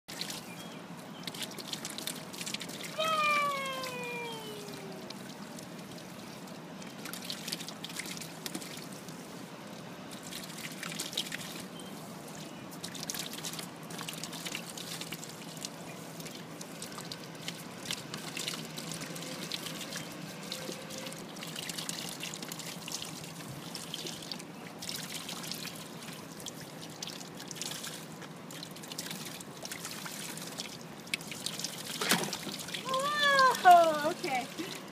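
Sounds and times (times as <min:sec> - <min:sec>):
water splashing in paddling pool: 0:01.3 - 0:34.9
child voice falling in pitch: 0:03.0 - 0:05.2, 0:32.8 - 0:34.4.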